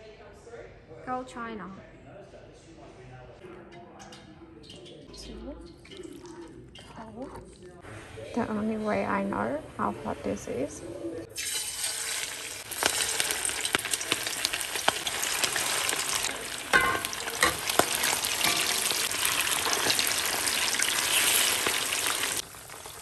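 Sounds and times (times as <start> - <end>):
chicken sizzling in hot oil: 11.3 - 23.0.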